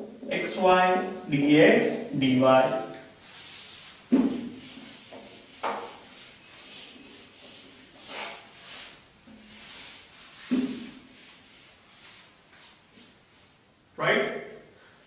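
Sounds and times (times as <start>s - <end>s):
duster wiping whiteboard: 1.8s - 13.2s.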